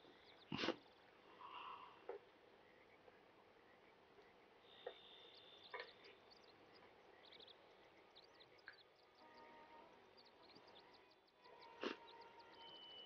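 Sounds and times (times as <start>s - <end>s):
faint high chirps and ticks: 0.0s - 13.0s.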